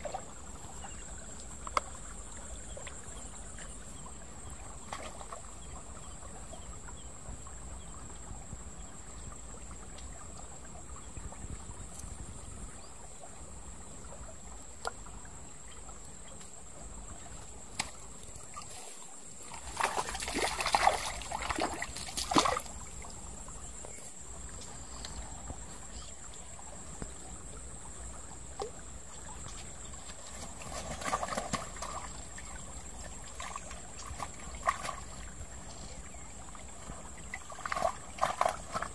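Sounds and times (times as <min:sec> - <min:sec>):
stream water trickling: 0:00.0 - 0:38.9
water splashing: 0:17.5 - 0:35.6, 0:36.4 - 0:38.9.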